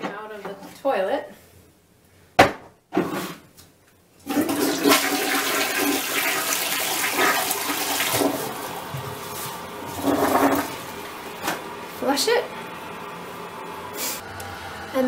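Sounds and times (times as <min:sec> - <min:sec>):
toilet flushing: 0:04.2 - 0:15.0.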